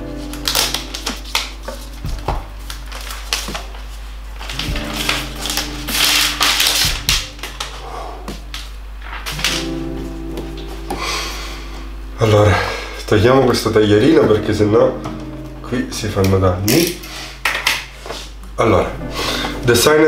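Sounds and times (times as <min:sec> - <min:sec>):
soft background music: 0:00.0 - 0:20.0
packaging rustling and crinkling: 0:00.2 - 0:09.8.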